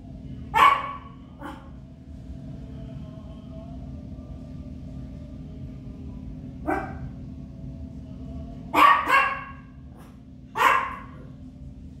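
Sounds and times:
small dog barking: 0:00.5 - 0:01.7, 0:06.6 - 0:07.1, 0:08.7 - 0:11.2.

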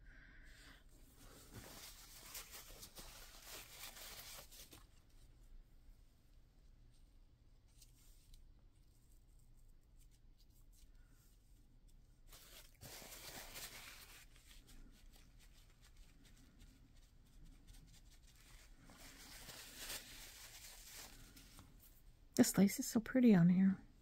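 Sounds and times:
paper rustling: 0:01.2 - 0:05.2, 0:12.2 - 0:22.0.

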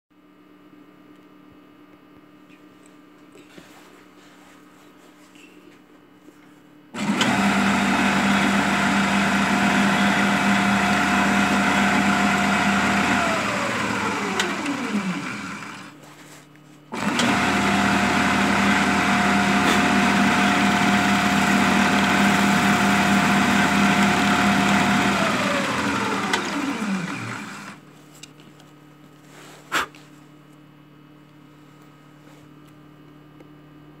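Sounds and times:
drill press motor humming: 0:06.9 - 0:16.1, 0:16.9 - 0:27.9.

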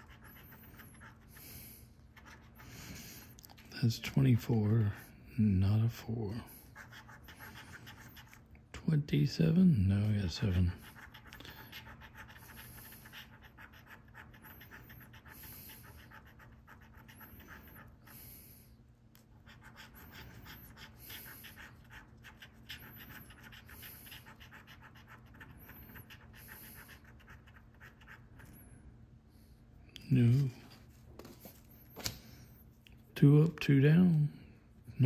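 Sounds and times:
coin scratching lottery ticket: 0:00.0 - 0:01.4, 0:06.8 - 0:08.4, 0:10.0 - 0:18.1, 0:19.4 - 0:28.5.

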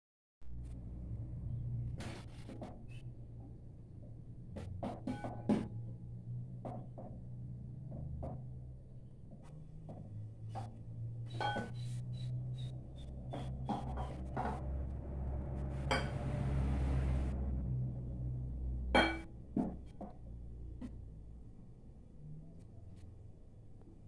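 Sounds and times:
steady low hum: 0:08.8 - 0:22.2
glass bowl and jar clinking: 0:11.4 - 0:11.8.

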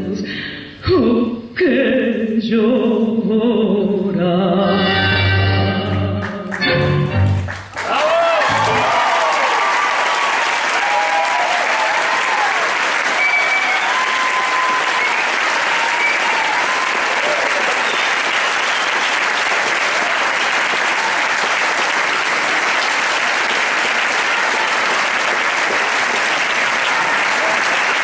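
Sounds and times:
audience applauding: 0:06.2 - 0:28.0
people cheering: 0:07.7 - 0:28.0.

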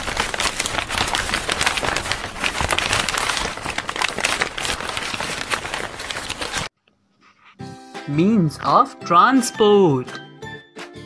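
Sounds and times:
dense crackling: 0:00.0 - 0:06.7.

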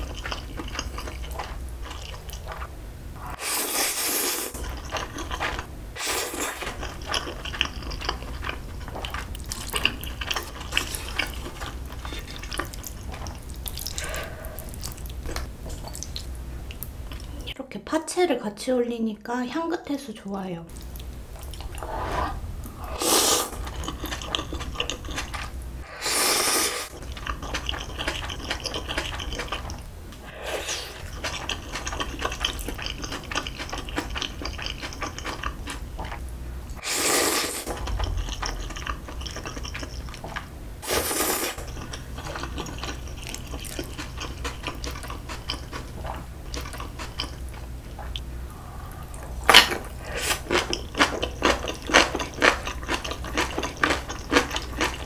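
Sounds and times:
wet chewing: 0:00.0 - 0:03.4, 0:04.4 - 0:17.4, 0:22.6 - 0:26.0, 0:26.8 - 0:36.2, 0:37.7 - 0:40.5, 0:41.2 - 0:55.0
noodle slurps: 0:21.6 - 0:24.3, 0:25.2 - 0:28.3.

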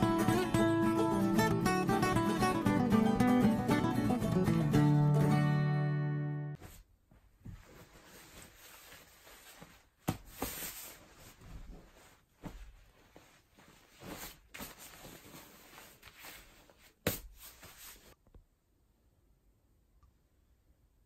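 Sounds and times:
clothes rustling as folded: 0:06.6 - 0:18.2.

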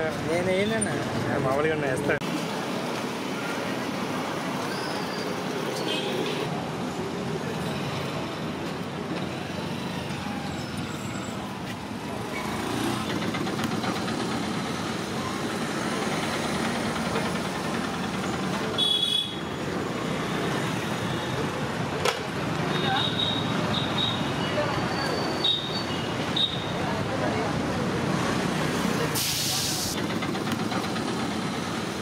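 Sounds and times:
roadside traffic noise: 0:00.0 - 0:32.0.

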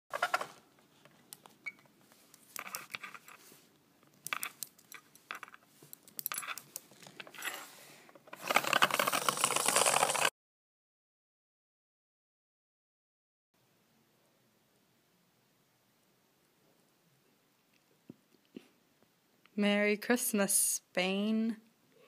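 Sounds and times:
clockwork rattling on wooden floor: 0:08.4 - 0:10.3
toy being wound clicking: 0:08.4 - 0:10.3.

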